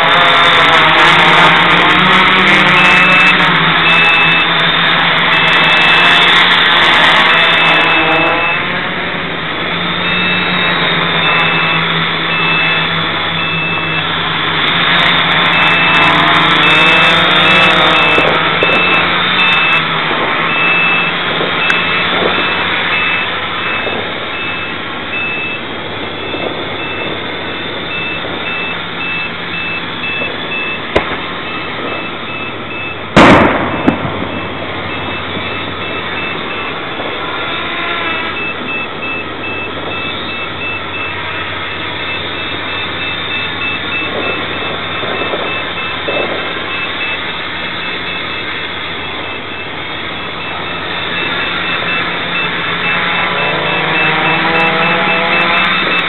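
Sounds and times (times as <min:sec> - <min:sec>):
drone propellers whirring: 0:00.0 - 0:56.0
high beep: 0:02.6 - 0:04.7, 0:05.3 - 0:08.7, 0:10.0 - 0:14.1, 0:15.4 - 0:19.9, 0:20.5 - 0:37.3, 0:38.1 - 0:56.0
faint sharp pops: 0:30.9 - 0:31.3.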